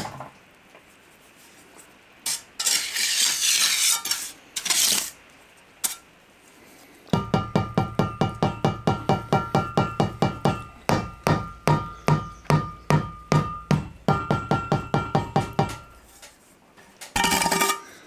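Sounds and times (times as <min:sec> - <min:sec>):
hammer tapping wooden formwork: 0:07.2 - 0:16.0.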